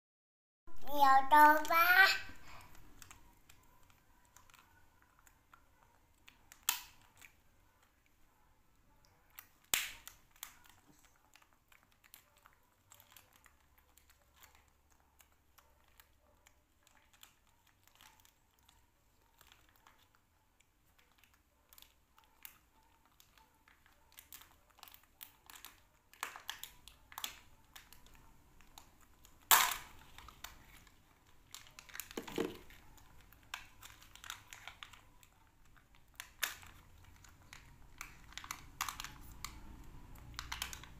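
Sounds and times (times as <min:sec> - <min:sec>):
plastic wrapper crinkling: 0:20.8 - 0:40.9.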